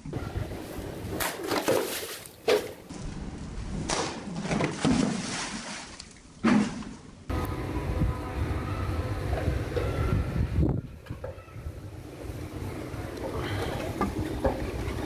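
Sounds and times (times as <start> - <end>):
water splashing: 1.2 - 2.9, 3.9 - 7.2.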